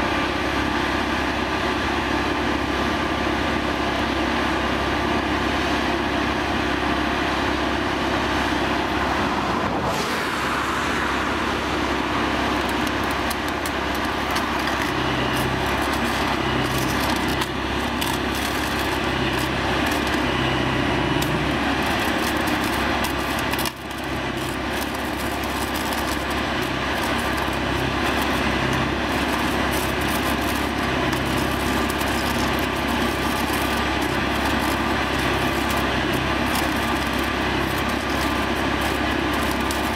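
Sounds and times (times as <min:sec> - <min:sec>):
welding machine running: 0:00.0 - 0:39.9
low pulsing hum: 0:08.0 - 0:39.9
welding head crackling: 0:11.2 - 0:39.9.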